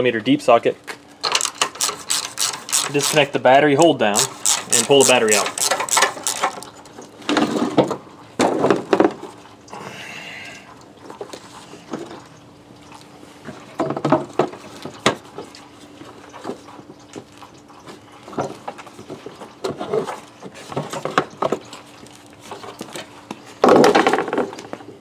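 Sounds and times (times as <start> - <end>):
faint steady hum: 0.0 - 25.0
tools knocking and clicking on parts: 1.2 - 7.2.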